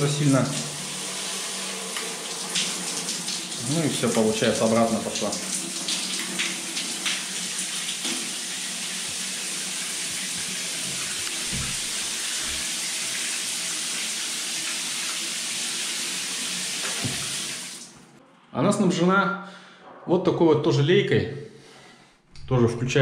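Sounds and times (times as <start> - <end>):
shower water spraying onto tiles: 0.0 - 18.0.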